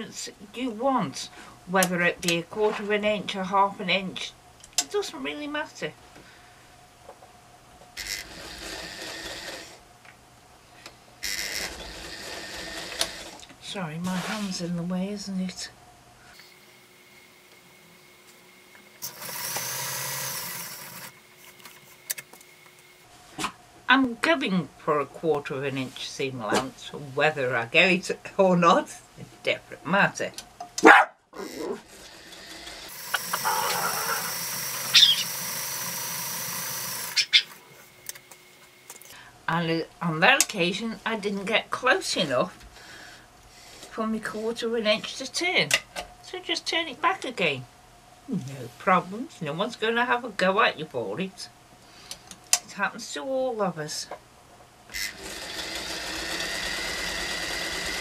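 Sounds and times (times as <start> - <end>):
sewing machine stitching: 8.0 - 9.8, 11.3 - 13.4, 19.0 - 21.2, 31.5 - 37.2, 55.0 - 58.0.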